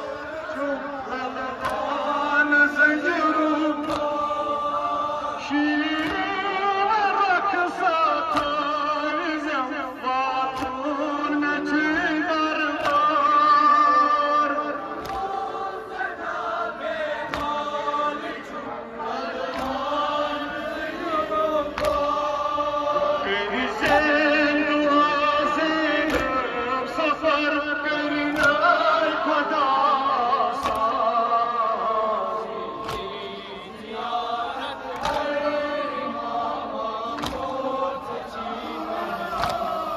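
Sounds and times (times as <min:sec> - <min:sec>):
men chanting a lament: 0:00.0 - 0:39.9
hands slapping chests: 0:01.6 - 0:02.3, 0:03.8 - 0:04.6, 0:05.9 - 0:06.4, 0:08.2 - 0:08.7, 0:10.4 - 0:10.9, 0:12.7 - 0:13.2, 0:14.9 - 0:15.6, 0:17.2 - 0:17.8, 0:19.2 - 0:20.0, 0:21.3 - 0:22.3, 0:23.8 - 0:24.1, 0:26.0 - 0:26.4, 0:28.3 - 0:28.6, 0:30.5 - 0:31.0, 0:32.8 - 0:33.2, 0:34.9 - 0:35.4, 0:36.7 - 0:37.7, 0:39.2 - 0:39.9.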